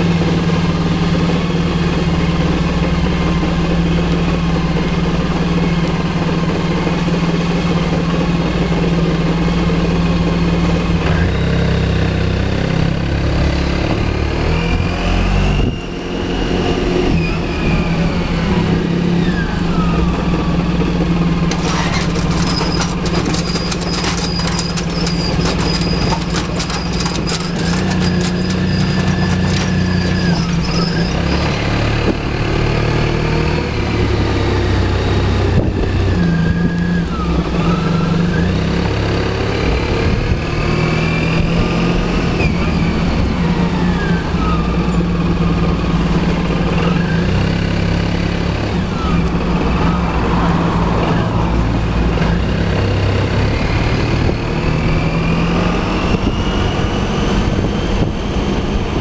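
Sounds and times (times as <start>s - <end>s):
scooter engine running: 0.0s - 14.9s, 15.6s - 40.7s.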